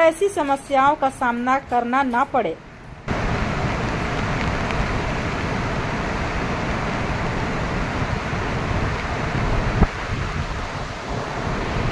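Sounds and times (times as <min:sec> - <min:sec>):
waterfall rushing: 0:03.1 - 0:11.9.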